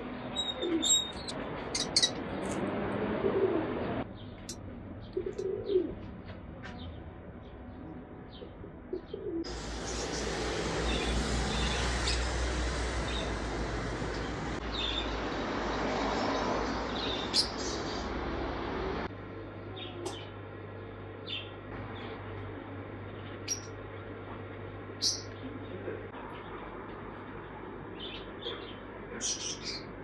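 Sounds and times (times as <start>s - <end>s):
high-pitched bird chirps: 0.3s - 2.2s
pigeons cooing: 0.4s - 2.2s, 3.0s - 3.8s, 5.1s - 6.0s, 8.9s - 12.5s, 25.3s - 26.2s
low rumble and hiss: 1.1s - 15.8s.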